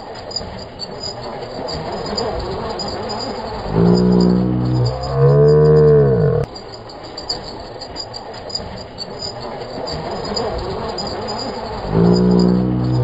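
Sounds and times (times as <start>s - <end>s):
insects chirring: 0.6s - 13.0s
loud low droning hum: 3.6s - 6.5s, 11.8s - 13.0s.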